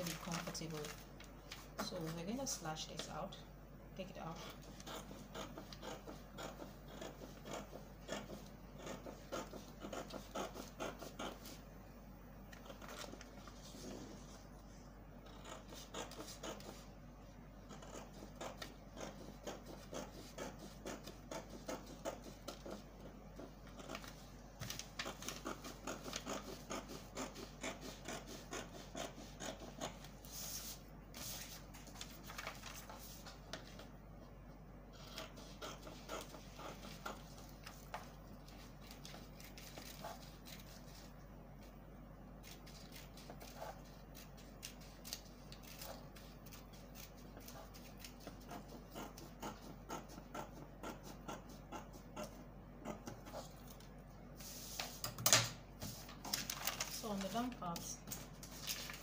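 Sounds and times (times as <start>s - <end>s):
paper rustling: 0.0s - 3.1s, 30.0s - 33.9s, 53.3s - 59.0s
scissors cutting paper: 0.0s - 3.3s, 4.2s - 11.6s, 12.5s - 13.8s, 15.2s - 16.9s, 17.6s - 33.9s, 35.0s - 41.2s, 42.4s - 55.1s, 55.8s - 59.0s.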